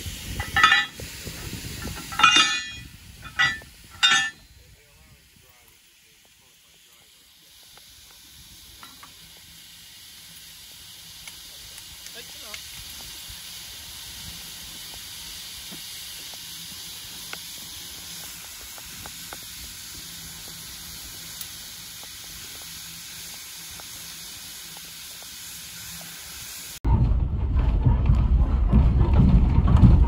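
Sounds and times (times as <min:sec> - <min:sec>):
steam hissing from locomotive: 0:00.0 - 0:26.8
low rumble: 0:26.8 - 0:30.0.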